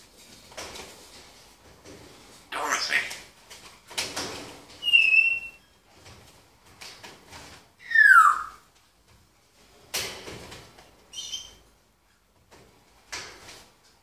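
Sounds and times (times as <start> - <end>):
parrot harsh calls: 2.5 - 3.3, 7.8 - 8.6
parrot whistle falling in pitch: 7.8 - 8.6.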